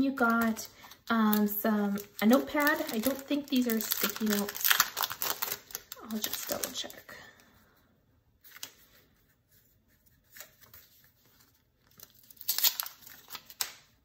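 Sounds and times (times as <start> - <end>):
paper rustling: 8.4 - 13.8.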